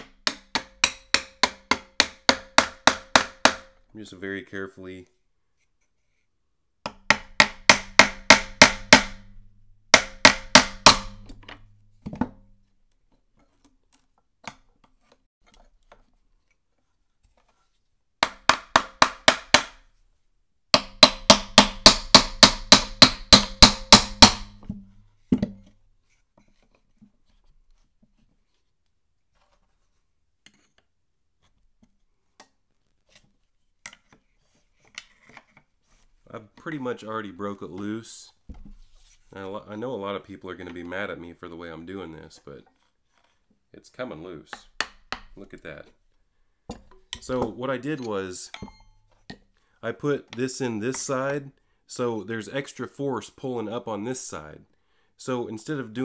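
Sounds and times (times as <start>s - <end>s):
hammer tapping on metal: 9.9s - 11.7s, 20.8s - 24.8s.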